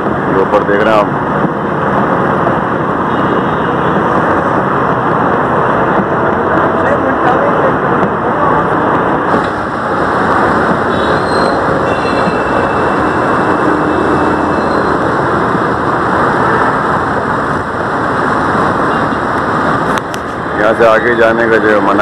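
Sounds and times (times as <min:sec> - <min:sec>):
road traffic noise: 0:00.0 - 0:22.0.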